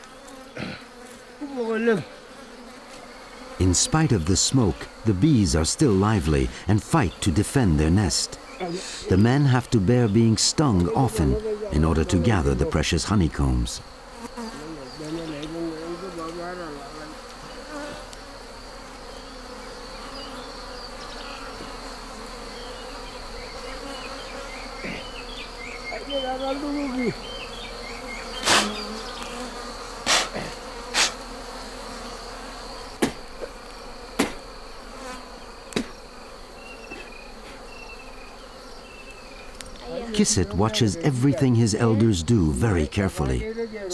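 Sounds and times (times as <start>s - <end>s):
honeybees buzzing: 0.0s - 43.9s
single bees droning past: 0.0s - 43.9s
sharp knocks: 33.0s - 33.2s, 34.2s - 34.4s.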